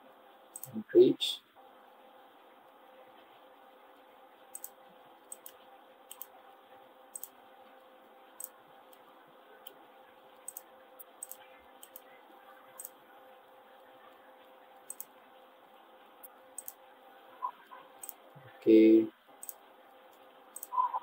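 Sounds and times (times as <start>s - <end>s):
faint steady hum: 0.0s - 21.0s
mouse and keyboard clicking: 0.5s - 0.8s, 4.5s - 6.3s, 7.1s - 7.4s, 8.4s - 9.0s, 10.4s - 12.1s, 12.8s - 13.0s, 14.9s - 15.1s, 16.6s - 16.8s, 17.6s - 18.2s, 19.4s - 21.0s.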